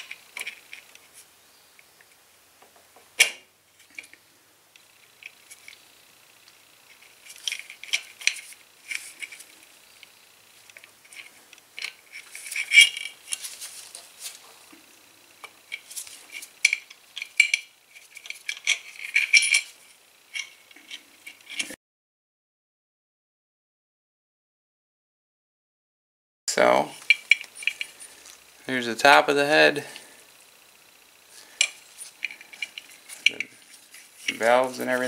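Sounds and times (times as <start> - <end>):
light metal clinks and rattles: 15.6 - 20.6.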